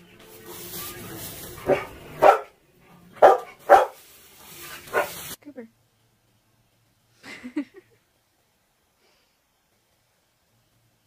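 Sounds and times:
dog barking: 1.6 - 2.6, 3.2 - 4.0, 4.9 - 5.2.

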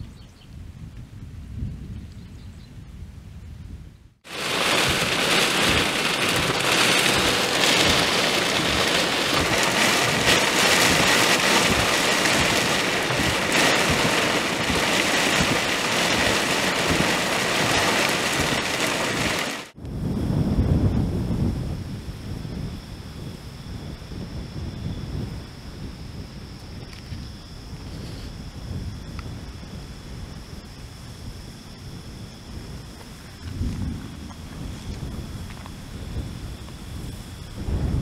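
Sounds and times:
wind buffeting microphone: 0.0 - 38.0
heavy rain pouring: 4.3 - 21.5.

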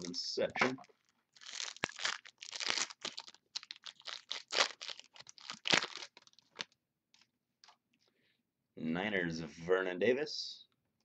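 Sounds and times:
plastic wrapper crinkling and tearing: 0.9 - 7.8.

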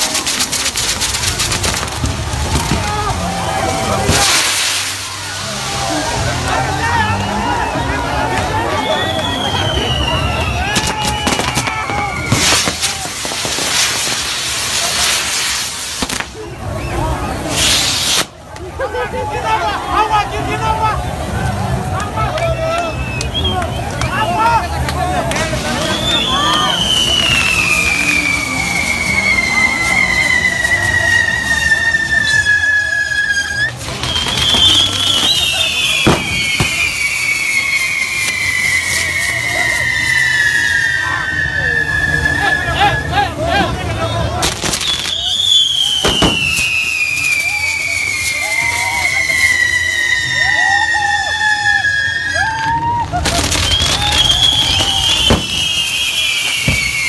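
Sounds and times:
fireworks crackling: 0.0 - 57.0
fireworks hissing: 0.0 - 57.0
falling whistle: 8.6 - 13.1, 25.6 - 43.3, 44.7 - 57.0
sharp crack: 10.7 - 16.4, 33.6 - 37.1, 44.4 - 47.6.

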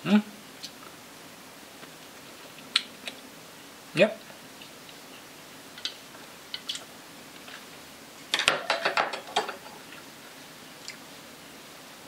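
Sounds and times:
cutlery clattering on counter: 8.3 - 9.7.

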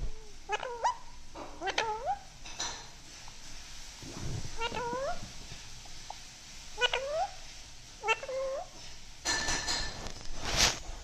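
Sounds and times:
rough noisy hiss: 0.0 - 11.0
parakeet calls: 0.1 - 2.3, 4.1 - 5.3, 6.8 - 8.8.

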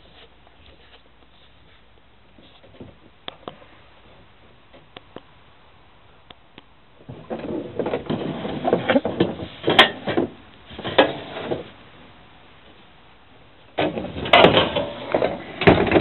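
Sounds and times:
metal box scraping and clattering: 7.1 - 11.8, 13.8 - 16.0.

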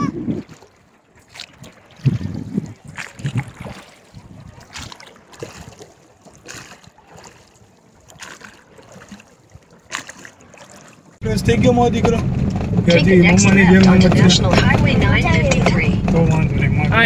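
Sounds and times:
water noise: 0.0 - 17.0
wind: 0.0 - 17.0
distant voices: 11.2 - 17.0.

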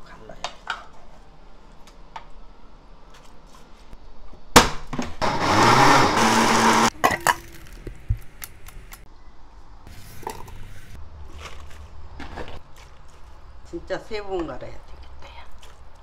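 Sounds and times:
electric blender grinding: 5.2 - 7.0.

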